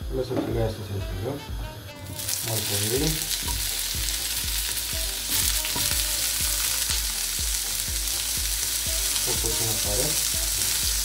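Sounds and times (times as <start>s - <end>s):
food sizzling in a frying pan: 2.0s - 11.0s.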